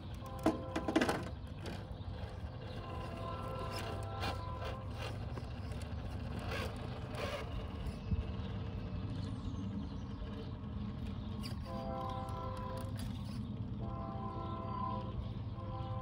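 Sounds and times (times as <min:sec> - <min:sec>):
toy car motor whirring: 0:01.7 - 0:08.8, 0:11.0 - 0:13.5.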